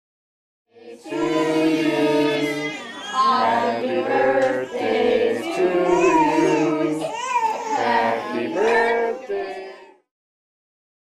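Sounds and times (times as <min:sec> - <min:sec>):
group singing long notes: 0:00.7 - 0:10.0.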